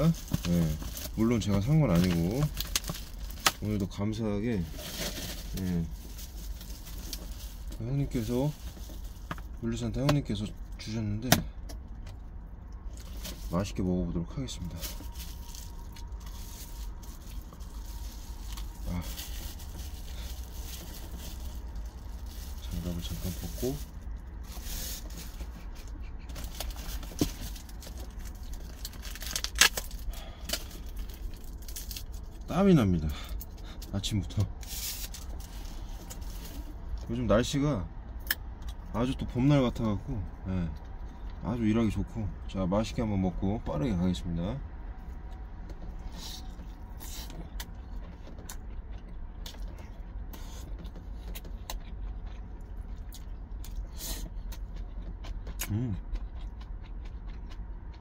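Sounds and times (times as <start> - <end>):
low steady hum: 0.0 - 58.0
plastic rustling and scraping: 4.5 - 9.6, 12.9 - 13.8, 14.6 - 32.2, 33.8 - 36.8
person chewing: 14.7 - 32.5, 45.6 - 58.0.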